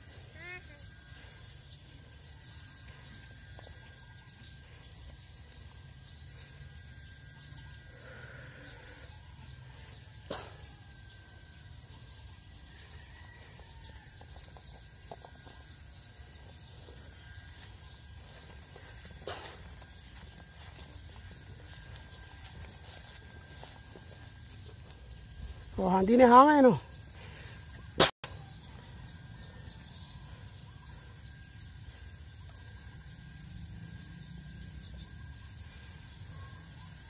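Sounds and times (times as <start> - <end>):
steady high-pitched tone: 14.3 - 37.0.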